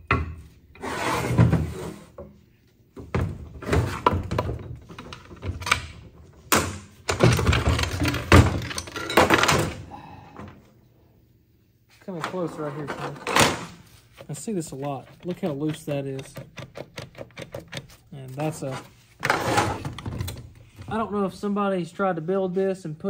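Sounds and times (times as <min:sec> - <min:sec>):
metal parts clunking and rattling: 0:03.0 - 0:10.6, 0:12.2 - 0:14.4, 0:15.1 - 0:21.0.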